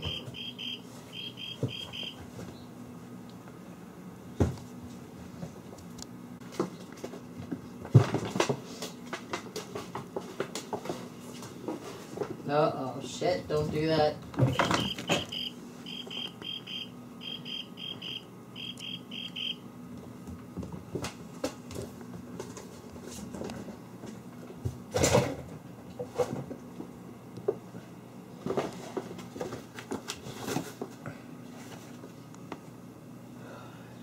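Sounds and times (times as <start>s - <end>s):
high chirping: 0.0s - 2.2s, 14.5s - 19.6s
low steady hum: 0.0s - 34.0s.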